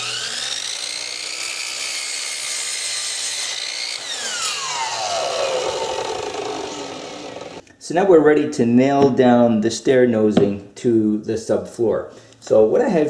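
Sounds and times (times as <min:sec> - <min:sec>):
miter saw cutting wood: 0:00.0 - 0:07.6.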